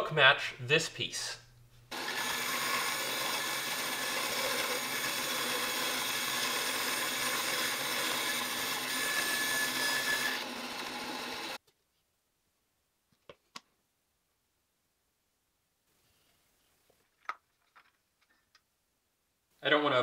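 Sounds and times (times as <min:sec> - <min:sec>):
bandsaw cutting wood: 0:01.9 - 0:11.6.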